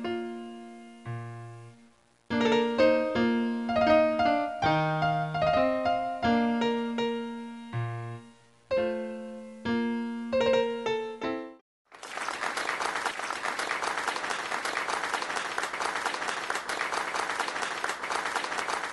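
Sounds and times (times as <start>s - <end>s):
background piano music: 0.0s - 11.6s
applause: 11.9s - 18.9s.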